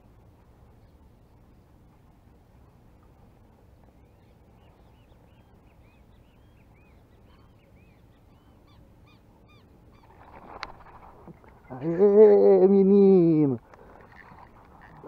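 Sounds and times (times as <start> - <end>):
faint flock of birds calling: 3.8 - 12.4.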